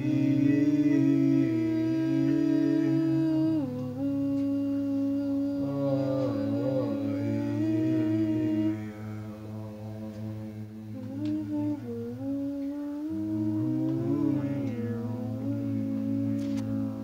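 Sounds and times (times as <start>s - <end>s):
group humming and chanting: 0.0s - 17.0s
steady low drone: 0.0s - 17.0s.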